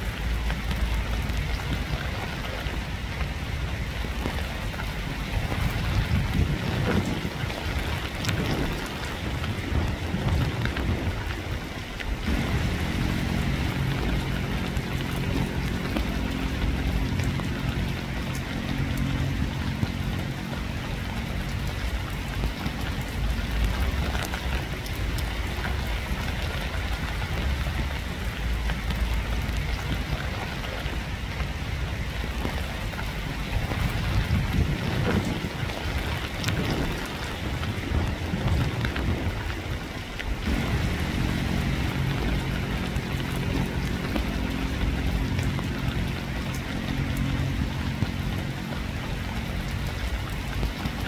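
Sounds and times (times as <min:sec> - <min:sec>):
rain falling: 0:00.0 - 0:51.0
raindrops ticking: 0:00.0 - 0:51.0
low steady hum: 0:12.1 - 0:34.1, 0:40.4 - 0:51.0.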